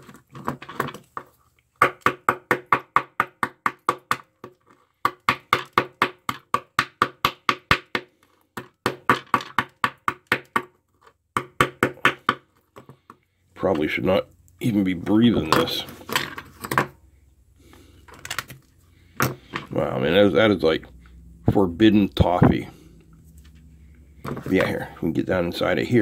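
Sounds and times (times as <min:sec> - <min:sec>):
knife chopping on wooden bench: 0:01.8 - 0:10.7.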